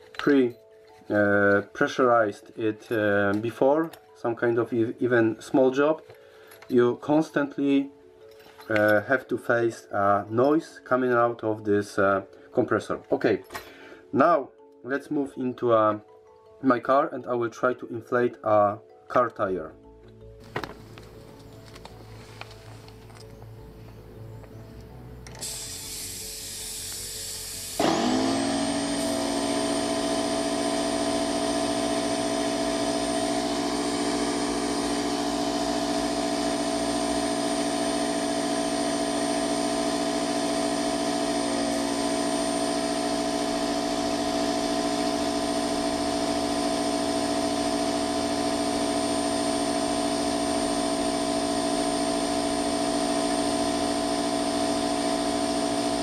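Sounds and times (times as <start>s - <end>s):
piston compressor running: 25.2s - 56.0s.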